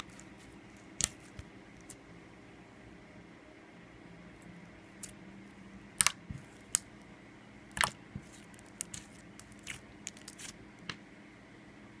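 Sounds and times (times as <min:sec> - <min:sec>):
slime sticky clicks and pops: 0:07.7 - 0:08.0.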